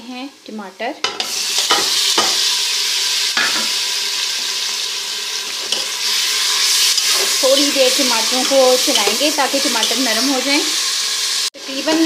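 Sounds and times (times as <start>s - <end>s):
tomatoes sizzling in pan: 0.0s - 12.0s
spoon knocking pan: 1.0s - 2.5s, 3.4s - 3.8s, 6.8s - 10.3s.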